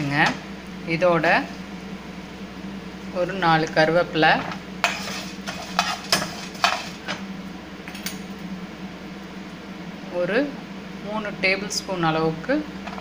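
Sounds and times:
spatula scraping a frying pan: 4.8s - 7.2s.

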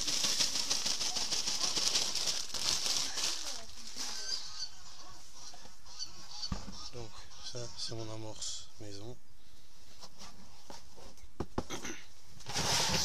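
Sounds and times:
plastic bag crinkling: 0.0s - 4.7s.

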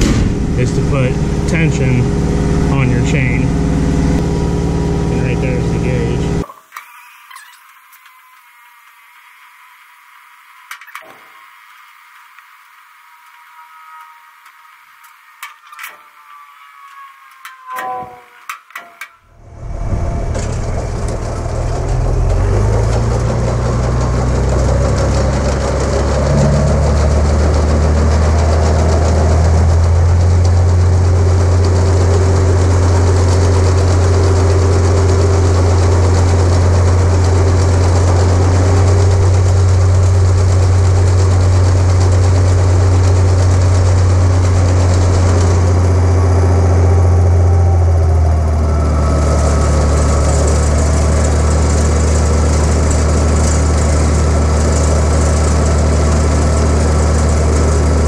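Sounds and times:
tractor engine running: 0.0s - 6.5s, 19.2s - 58.0s.

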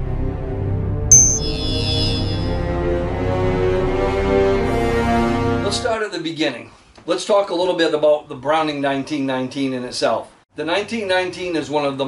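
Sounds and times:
sharp hit ringing: 1.1s - 1.7s.

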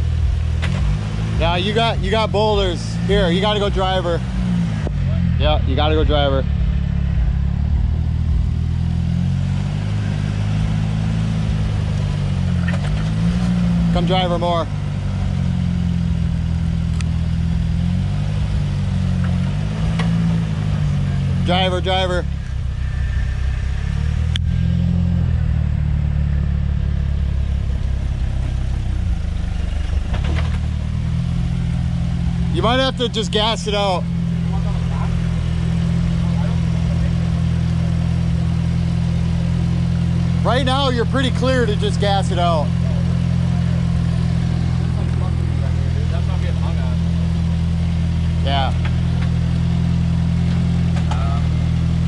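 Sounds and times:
off-road vehicle engine running: 0.0s - 52.0s.

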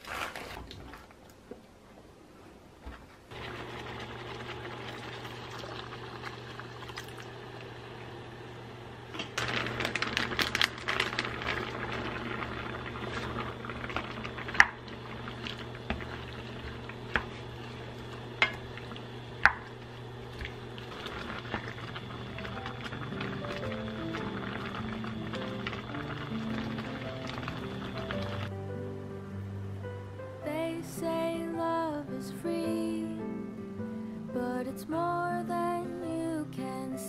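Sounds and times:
food bubbling in a pot: 3.3s - 28.5s.

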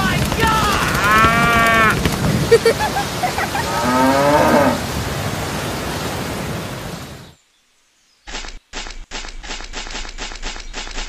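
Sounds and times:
steady rain: 0.0s - 7.5s
cow mooing: 1.0s - 2.0s, 3.6s - 4.8s.

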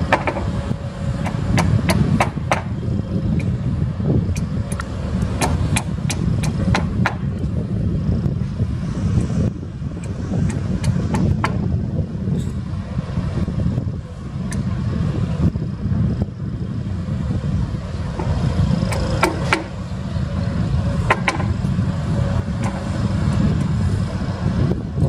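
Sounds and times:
bulldozer diesel engine rumbling: 0.0s - 25.0s
steel tracks clanking and squeaking: 10.0s - 12.7s, 18.0s - 23.8s.

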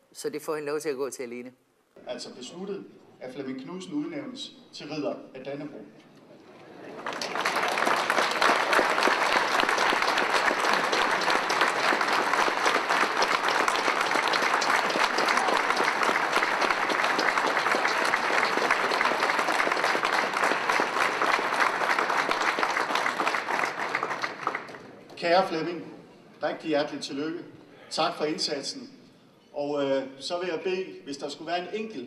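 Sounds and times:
large audience applauding: 6.8s - 25.1s.

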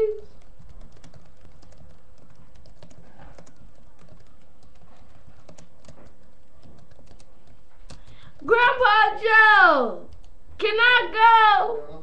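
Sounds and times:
laptop keyboard typing: 0.0s - 8.6s, 10.0s - 10.4s.

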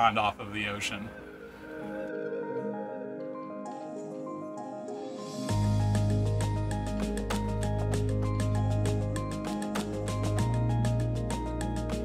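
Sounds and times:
music with percussive beat and bass: 5.3s - 12.0s.

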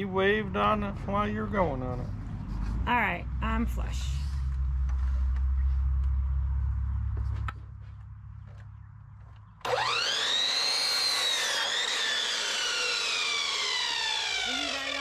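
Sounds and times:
miter saw motor whine: 9.6s - 15.0s.

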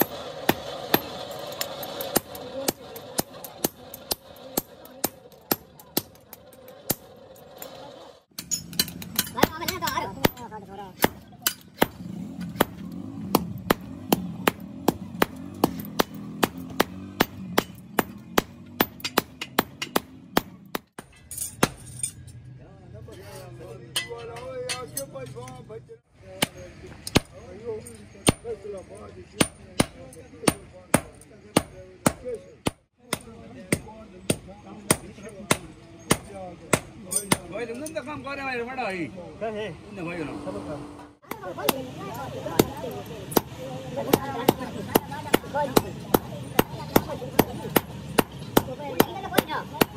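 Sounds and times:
sledgehammer striking hot steel: 0.0s - 22.1s, 42.5s - 49.9s.

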